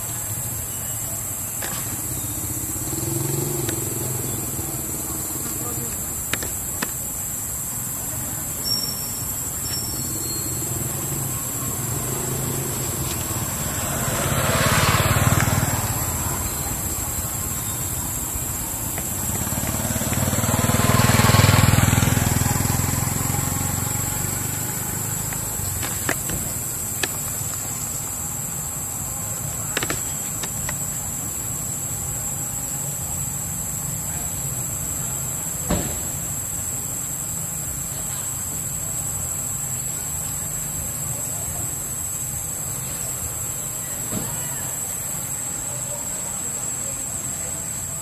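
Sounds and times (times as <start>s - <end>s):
steady high-pitched hiss: 0.0s - 48.0s
vehicles driving past: 0.0s - 48.0s.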